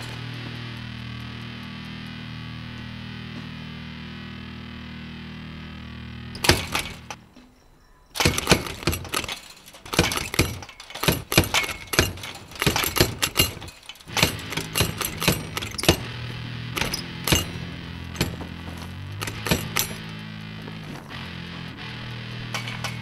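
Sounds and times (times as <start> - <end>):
low music drone: 0.0 - 7.4, 11.3 - 23.0
metal gate rattling and clanking: 6.4 - 23.0.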